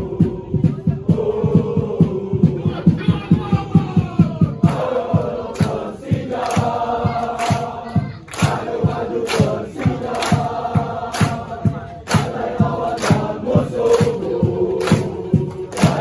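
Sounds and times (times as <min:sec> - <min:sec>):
crowd chanting in unison: 0:00.0 - 0:16.0
low thumping beat: 0:00.0 - 0:16.0
sharp claps: 0:04.6 - 0:16.0.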